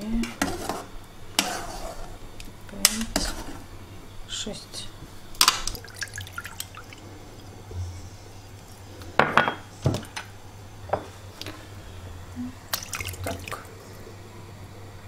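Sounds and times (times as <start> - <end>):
liquid pouring and splashing: 5.6 - 7.0, 12.7 - 13.8.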